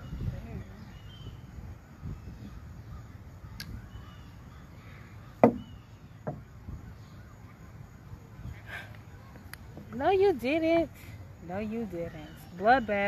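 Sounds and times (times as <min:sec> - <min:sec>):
faint bird calls: 0:00.0 - 0:10.0.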